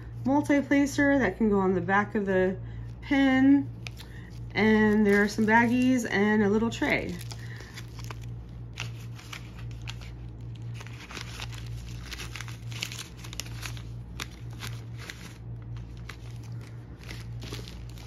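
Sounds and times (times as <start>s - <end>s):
plastic bags crinkling: 3.7s - 18.0s.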